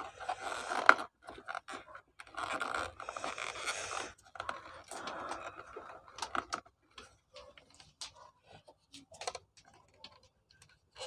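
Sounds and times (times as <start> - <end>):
hard plastic scraping: 0.0 - 11.0.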